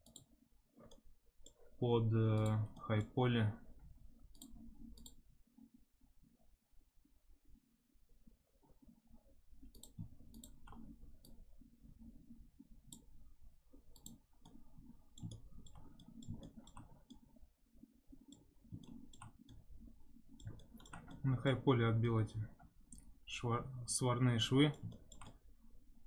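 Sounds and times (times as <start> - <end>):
computer mouse clicks: 0.0 - 1.7, 2.3 - 3.2, 4.2 - 5.2, 9.6 - 11.4, 12.9 - 13.1, 13.9 - 17.3, 18.2 - 21.3, 22.9 - 23.1, 24.4 - 25.4
low room hum: 0.0 - 26.0.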